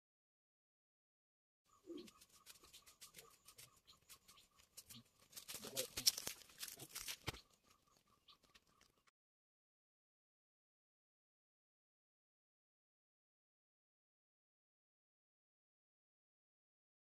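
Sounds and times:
footsteps on dry leaves: 1.9s - 8.9s.

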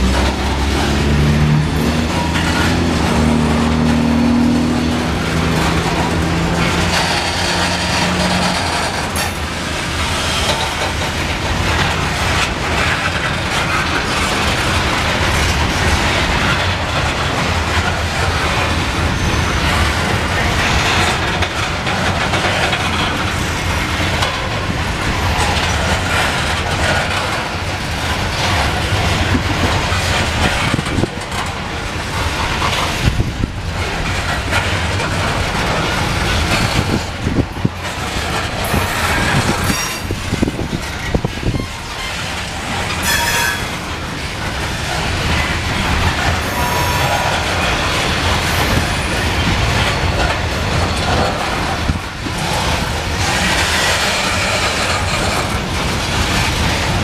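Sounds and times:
steel wheels rumbling over rail joints: 0.0s - 57.0s.

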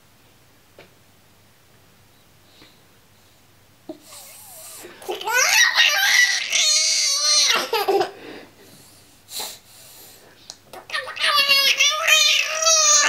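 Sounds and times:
baby laughing: 5.0s - 8.2s, 10.8s - 13.0s.

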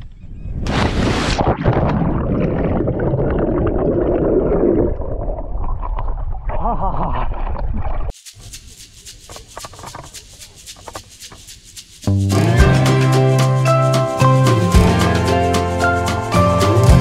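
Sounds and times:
water sloshing and gurgling: 0.7s - 8.2s
music with shaker rhythm: 8.2s - 17.0s.

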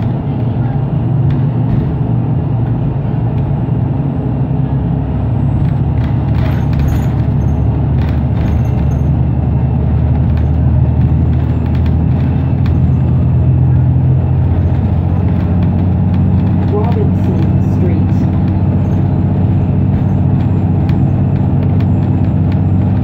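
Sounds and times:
bus drivetrain drone: 0.0s - 23.0s
road and tyre noise: 0.0s - 23.0s
rattles and clinks of bus fittings: 5.4s - 23.0s.

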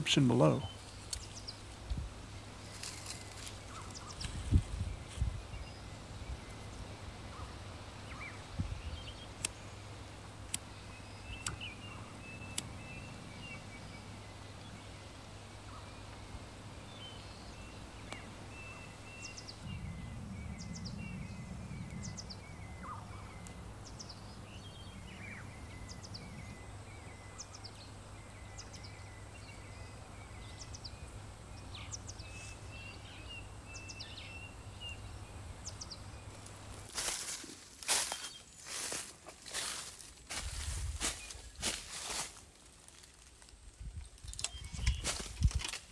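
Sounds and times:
small birds chirping: 0.0s - 45.9s
sharp clicks: 11.4s - 11.7s.

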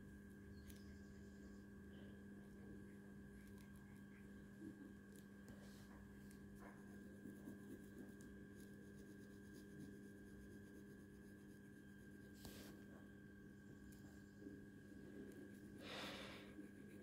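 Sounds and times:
low electrical hum: 0.0s - 17.0s
pen scratching on paper: 6.6s - 12.4s.

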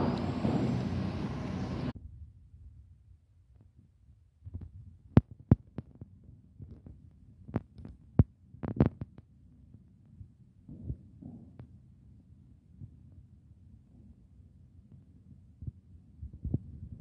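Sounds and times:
low steady hum: 0.0s - 8.6s.

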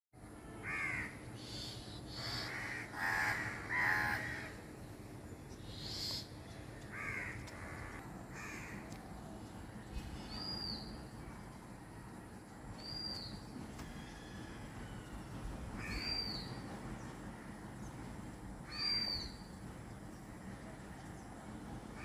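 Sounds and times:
harsh bird calls: 0.6s - 8.9s, 12.8s - 22.0s.

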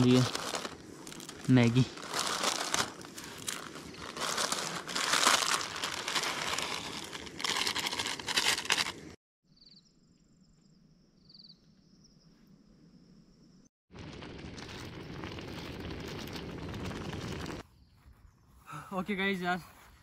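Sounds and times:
plastic wrapper crinkling and tearing: 0.0s - 9.2s, 14.0s - 17.6s.

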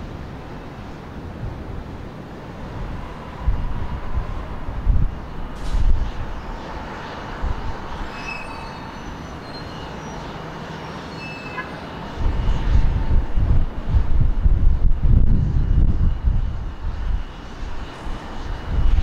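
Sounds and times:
jet engines whining: 0.0s - 19.0s
low rumble of jet: 0.0s - 19.0s.

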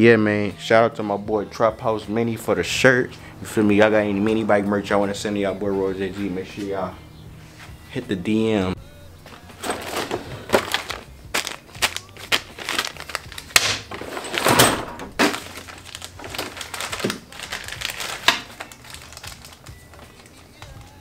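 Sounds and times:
plastic bag crinkling: 9.4s - 20.8s.

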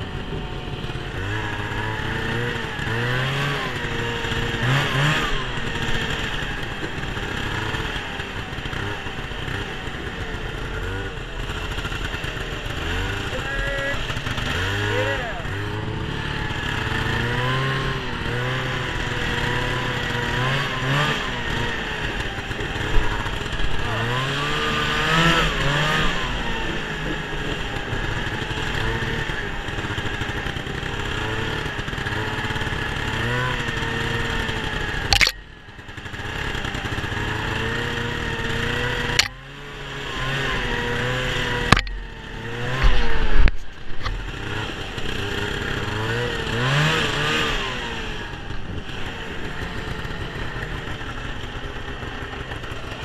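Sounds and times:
snowmobile engine running: 0.0s - 53.0s
click: 35.1s - 35.4s.

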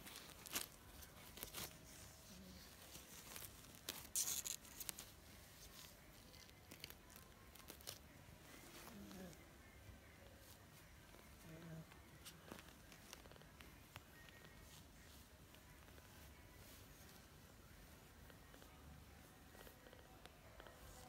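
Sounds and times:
kittens' claws scratching: 0.0s - 9.2s.

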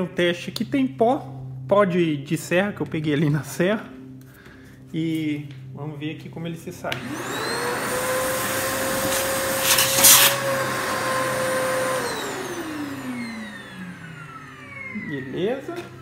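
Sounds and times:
vacuum cleaner whining: 6.9s - 16.0s
sawdust sucked through hose: 7.9s - 12.0s.

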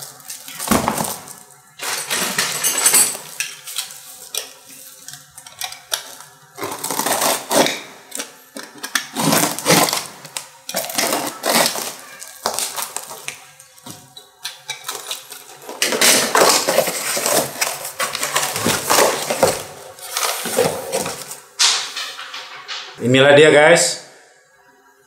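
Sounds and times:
cardboard box rustling and scraping: 16.0s - 21.4s.

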